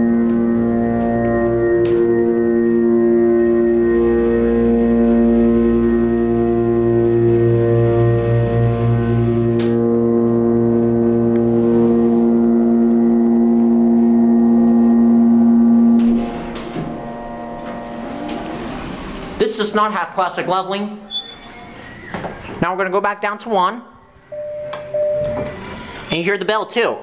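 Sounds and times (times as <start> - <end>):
low rumble: 0.0 - 19.7
hydraulic pump motor hum: 4.1 - 19.4
elevator doors sliding open: 16.0 - 19.9, 20.9 - 22.6, 24.6 - 26.2.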